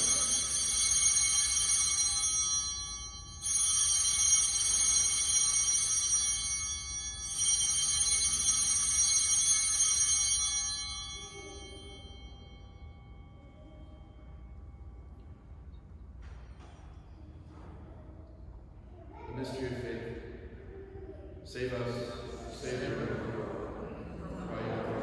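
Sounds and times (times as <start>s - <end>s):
altar bells ringing: 0.0s - 17.0s.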